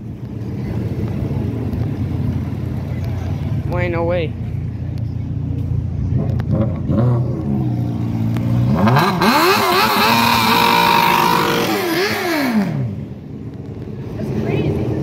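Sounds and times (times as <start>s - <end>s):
motorcycle engine revving: 6.0s - 15.0s.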